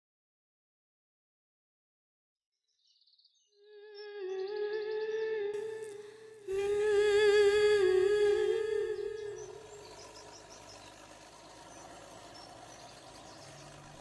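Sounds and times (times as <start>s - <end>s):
high voice humming: 3.7s - 10.4s.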